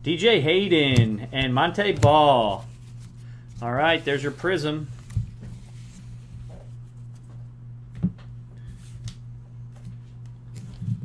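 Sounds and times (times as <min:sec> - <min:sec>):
steady low hum: 0:00.0 - 0:11.0
cards rustling and tapping: 0:00.7 - 0:03.2.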